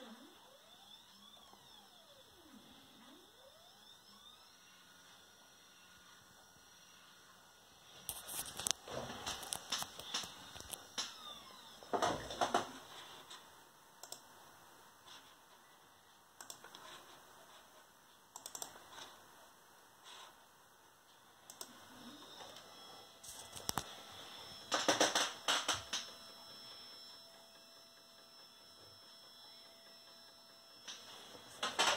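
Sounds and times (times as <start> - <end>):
computer keys clicking: 8.1 - 11.2, 14.0 - 14.3, 16.4 - 16.9, 18.3 - 18.8, 21.5 - 21.7, 23.3 - 23.9.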